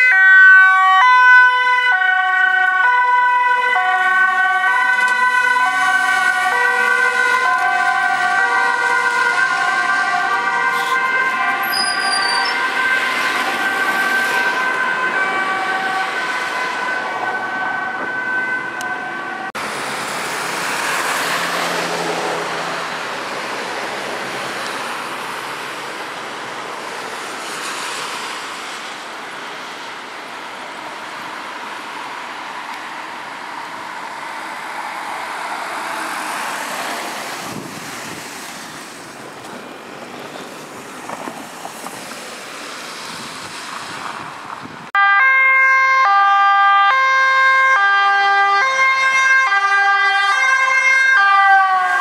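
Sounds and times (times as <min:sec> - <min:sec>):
ambulance two-tone siren: 0:00.0 - 0:19.6, 0:44.9 - 0:52.0
police siren sweeping: 0:00.0 - 0:22.8, 0:45.0 - 0:52.0
passing traffic: 0:00.0 - 0:52.0.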